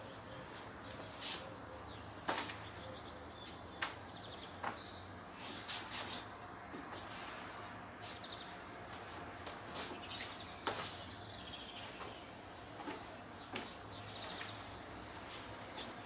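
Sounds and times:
footsteps on wooden deck: 0.5s - 16.0s
bird trilling chirps: 9.9s - 12.3s.

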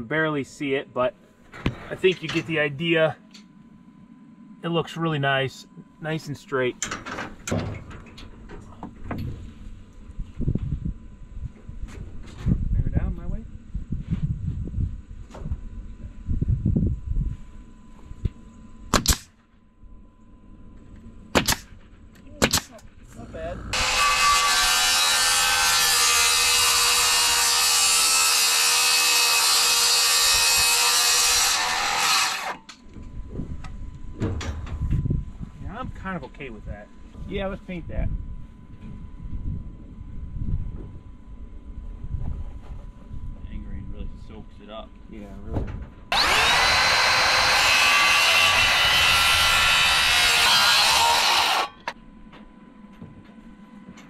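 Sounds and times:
circular saw cutting wood: 23.2s - 32.7s, 46.1s - 52.0s.

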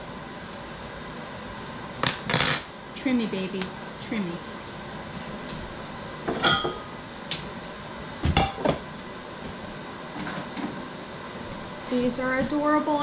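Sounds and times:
steady background noise: 0.0s - 13.0s
dishes clinking: 2.0s - 2.8s, 6.3s - 6.9s.

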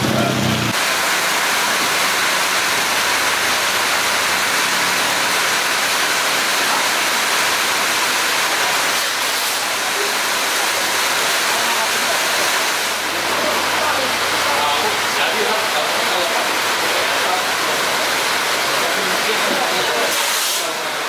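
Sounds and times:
heavy rain falling: 0.0s - 21.0s.

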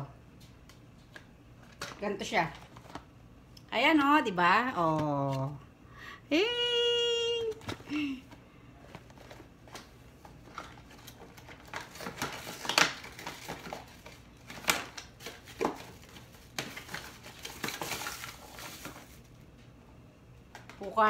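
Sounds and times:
plastic rustling: 7.5s - 19.4s.

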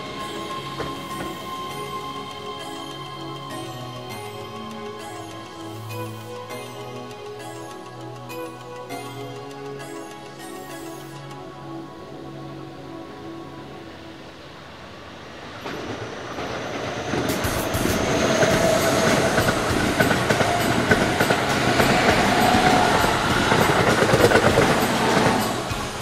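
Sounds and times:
electric train passing: 0.0s - 26.0s
wheels clattering over rail joints: 15.6s - 26.0s.

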